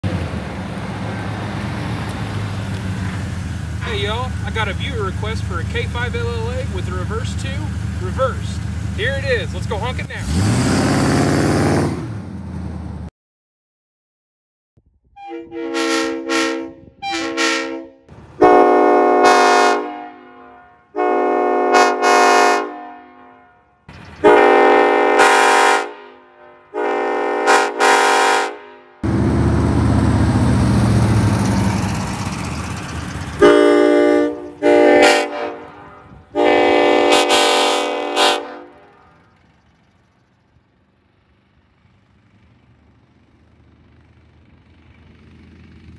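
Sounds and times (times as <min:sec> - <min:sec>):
train horn blasts: 0:15.2 - 0:29.0, 0:33.4 - 0:39.2.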